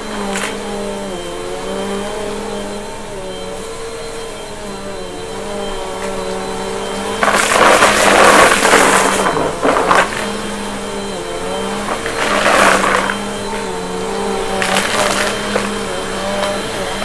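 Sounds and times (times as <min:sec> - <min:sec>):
vacuum cleaner motor humming: 0:00.0 - 0:17.0
debris crackling into vacuum: 0:07.0 - 0:13.7, 0:14.5 - 0:16.7.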